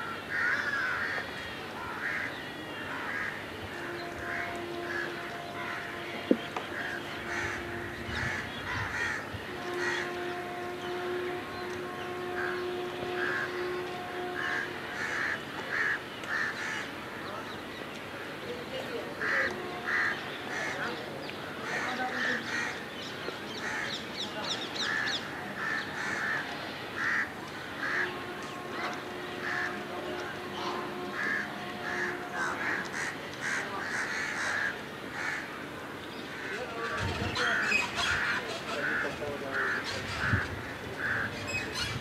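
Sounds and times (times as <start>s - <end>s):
crow cawing: 0.3s - 1.2s, 1.8s - 3.4s, 6.8s - 10.1s, 14.3s - 16.9s, 19.2s - 20.8s, 24.8s - 26.4s, 27.0s - 28.2s, 31.0s - 35.5s, 37.4s - 41.6s.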